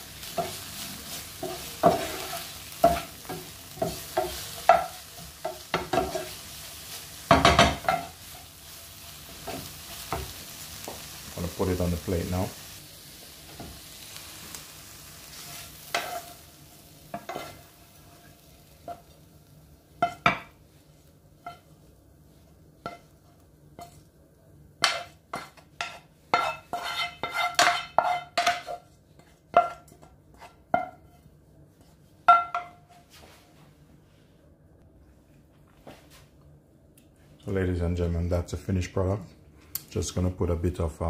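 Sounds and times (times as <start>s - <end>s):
faint sizzle: 0.0s - 27.2s.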